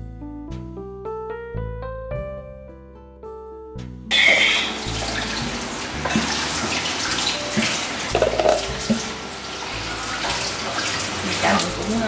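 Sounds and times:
water boiling in a pot: 4.1 - 12.0.

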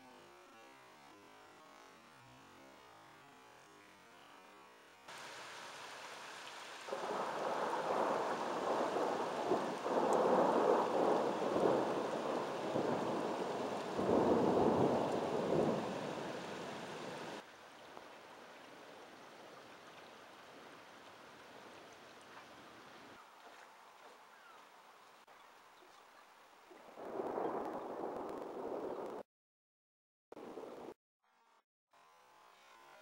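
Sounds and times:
steady rain: 3.2 - 25.3, 26.1 - 29.2
thunder rolling: 6.9 - 17.4, 27.0 - 29.2.

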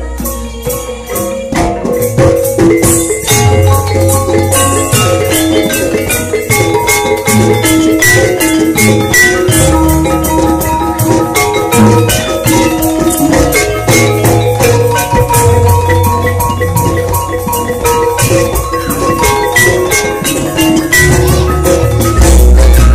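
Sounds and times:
drum strokes: 0.0 - 22.9
metallophones struck in quick beat: 0.0 - 22.9.

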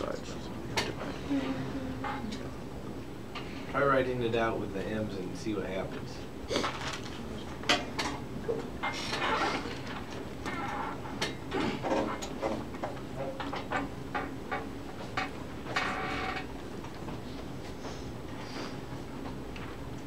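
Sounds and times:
pens paper and desks rustling: 5.7 - 20.0.

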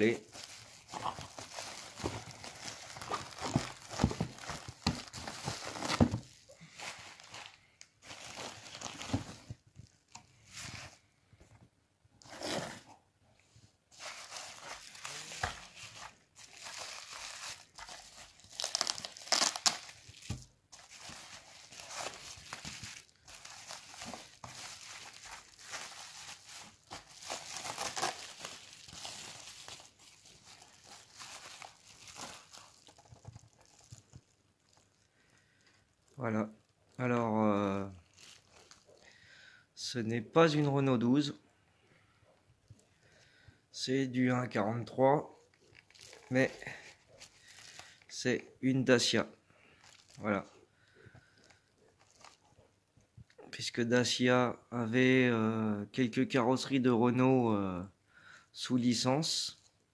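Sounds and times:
bubble wrap crinkling: 0.0 - 11.0, 13.9 - 37.1, 37.8 - 39.2, 45.4 - 48.1, 49.7 - 50.6, 51.2 - 52.7.

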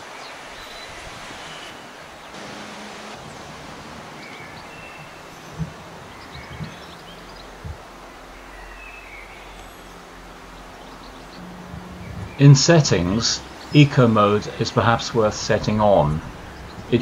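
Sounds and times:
faint bird chirps: 4.1 - 14.0
soft low thumps: 11.4 - 12.9.

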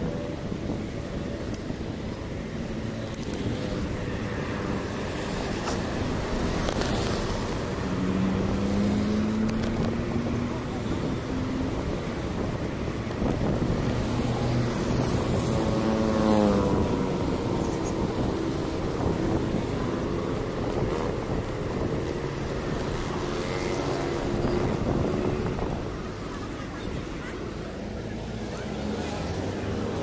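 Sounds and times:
road noise hum: 0.0 - 30.0
vehicle engines running: 0.0 - 30.0
engine passing: 3.1 - 26.6.

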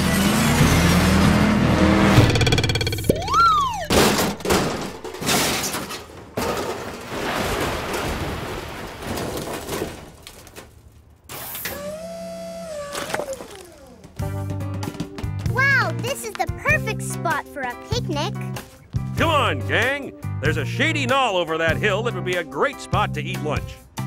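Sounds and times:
cartoon crash impact: 2.1 - 5.7
wavering tone: 2.2 - 4.1
crashing and sliding rumble: 3.9 - 11.2.

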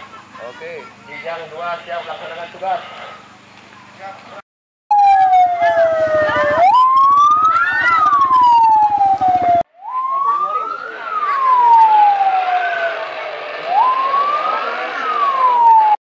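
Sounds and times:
vehicle siren wailing: 4.9 - 16.0.

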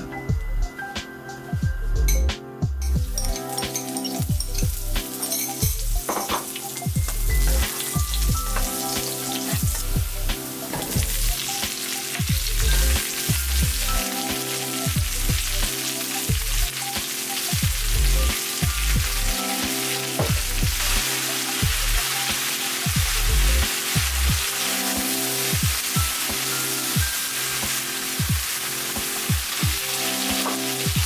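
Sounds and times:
calm background music: 0.0 - 31.0
food sizzling in hot oil: 2.9 - 31.0.

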